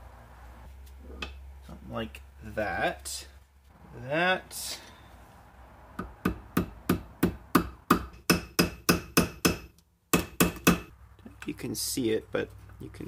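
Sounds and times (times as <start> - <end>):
hammer striking steel punch: 6.0 - 10.9.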